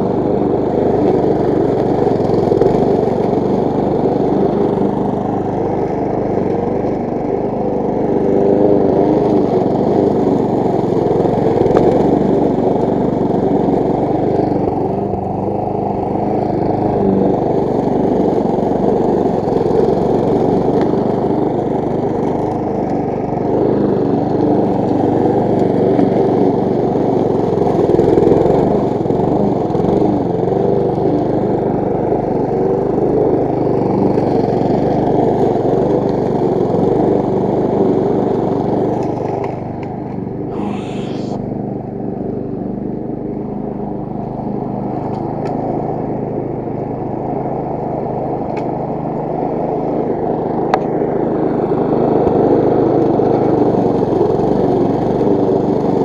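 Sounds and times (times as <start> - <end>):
lawn mower engine running: 0.0 - 40.5, 41.6 - 56.0.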